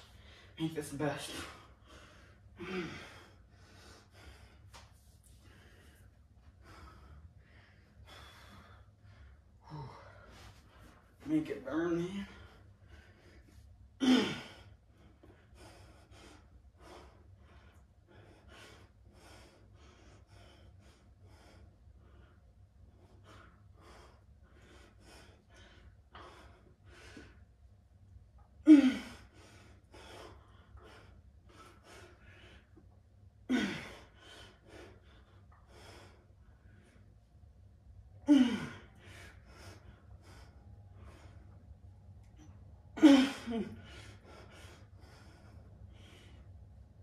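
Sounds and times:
man breathing hard: 0.0s - 27.7s, 28.6s - 37.3s, 38.2s - 47.0s.

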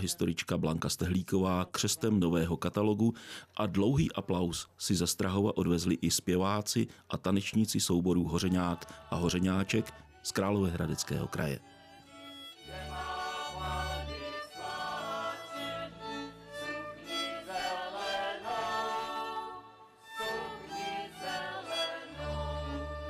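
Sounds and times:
men singing folk song: 8.4s - 10.1s, 12.6s - 16.2s
fiddles playing: 8.4s - 23.0s.

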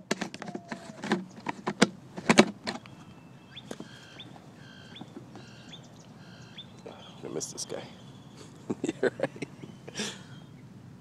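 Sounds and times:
bird chirping: 2.6s - 10.8s.

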